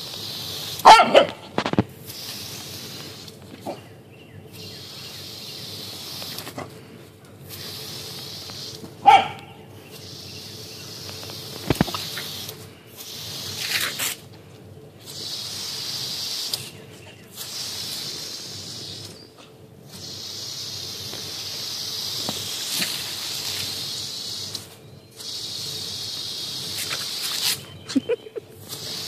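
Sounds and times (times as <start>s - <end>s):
garden hose spraying water: 0.0s - 29.0s
dog barking: 0.8s - 1.5s, 9.0s - 9.6s.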